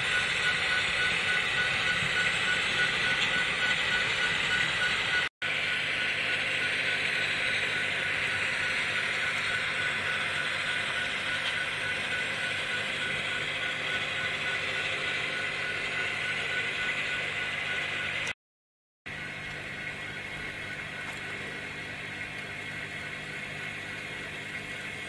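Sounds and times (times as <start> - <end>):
model train whirring: 0.0 - 18.3.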